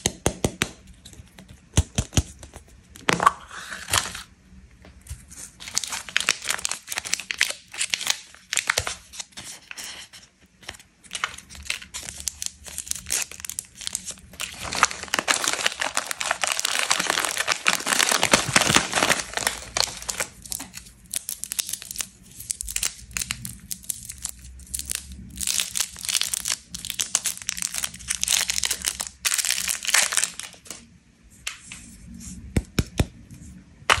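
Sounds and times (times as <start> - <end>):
plastic wrappers crinkling and tearing: 5.2 - 30.8.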